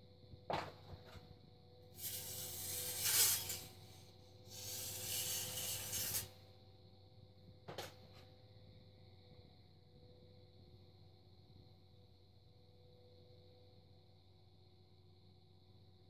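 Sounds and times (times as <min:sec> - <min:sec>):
potter's wheel motor hum: 0:00.6 - 0:06.4
tool scraping clay: 0:02.0 - 0:06.3.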